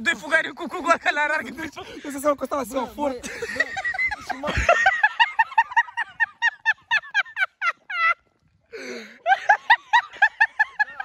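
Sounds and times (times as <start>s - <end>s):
man laughing hysterically: 3.2s - 8.2s, 9.1s - 11.0s.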